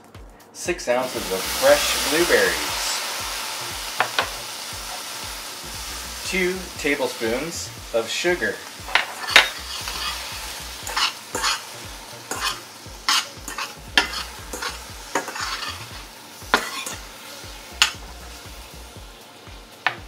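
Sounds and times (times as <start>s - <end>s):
spoon scraping and tapping a pan: 4.0s - 4.4s, 8.9s - 11.7s, 12.3s - 17.1s, 17.8s - 18.0s.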